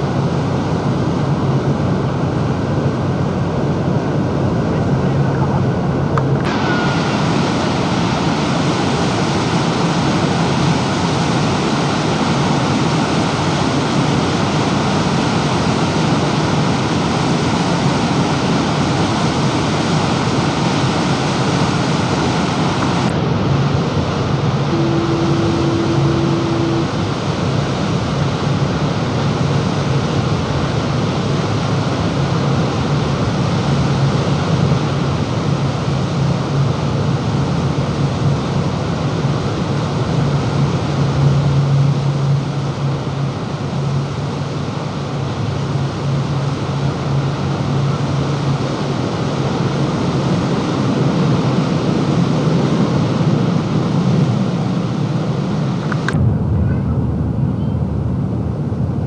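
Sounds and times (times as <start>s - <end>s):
boat engine hum: 0.0s - 59.0s
short steady tone: 6.4s - 7.5s, 24.7s - 27.4s
water rushing along boat hull: 6.4s - 56.2s.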